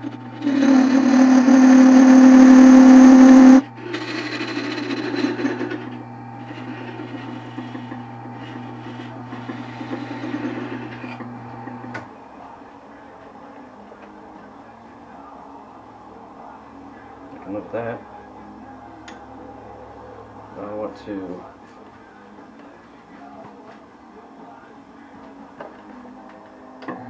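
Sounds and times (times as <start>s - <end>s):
turning tool cutting spinning wood: 0.0s - 12.1s
lathe motor hum: 0.0s - 12.6s.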